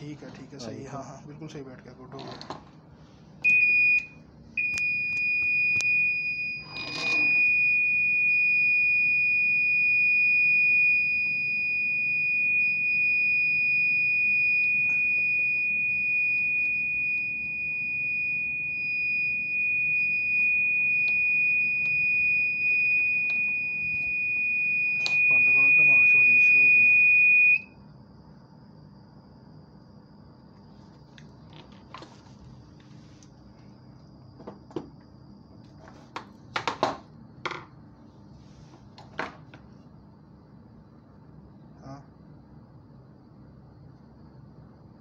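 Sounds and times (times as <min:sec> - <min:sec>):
steady high alarm tone: 0:03.4 - 0:27.8.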